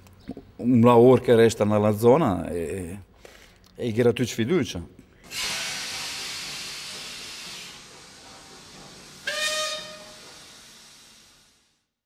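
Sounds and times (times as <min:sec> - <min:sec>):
steam hissing: 0:05.2 - 0:12.0
steam whistle: 0:09.1 - 0:11.7.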